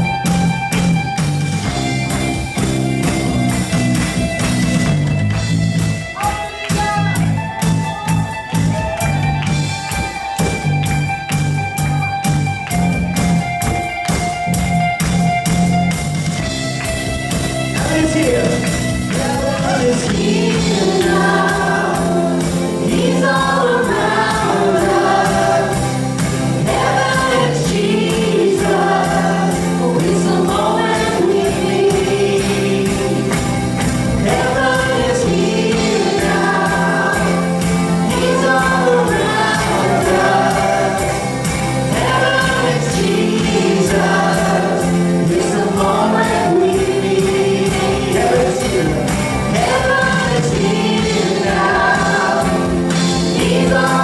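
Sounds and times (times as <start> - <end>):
gospel band playing: 0.0 - 54.0
women singing together: 19.2 - 33.3, 34.2 - 54.0.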